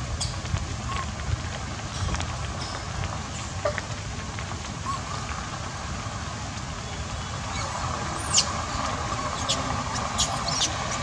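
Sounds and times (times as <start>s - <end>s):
monkey squealing: 10.2s - 10.8s.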